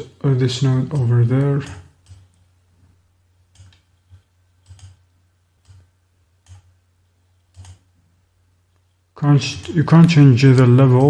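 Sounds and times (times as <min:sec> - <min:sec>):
computer mouse buttons clicking: 0:03.5 - 0:03.9, 0:04.6 - 0:05.0, 0:05.6 - 0:06.7, 0:07.5 - 0:07.9.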